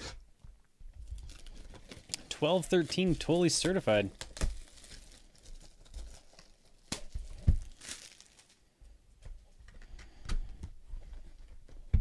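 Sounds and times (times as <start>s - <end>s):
plastic wrap crinkling: 1.0s - 8.7s.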